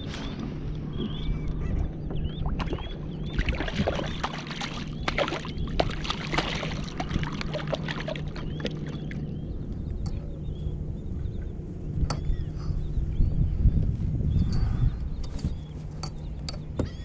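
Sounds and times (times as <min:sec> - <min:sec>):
fish splashing at surface: 0:03.4 - 0:09.0.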